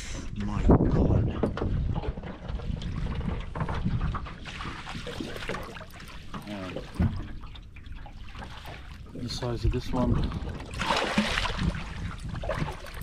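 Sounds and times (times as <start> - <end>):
water splashing against boat: 0.0 - 13.0.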